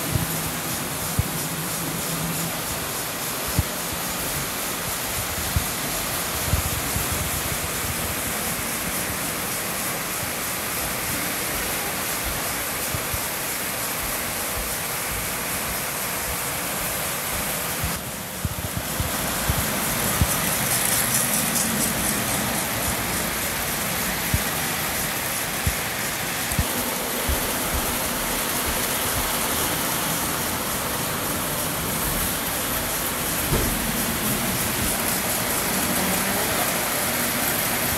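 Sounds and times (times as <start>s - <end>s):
model trains whirring: 0.0s - 37.9s
wheels clicking over rail joints: 17.9s - 37.9s.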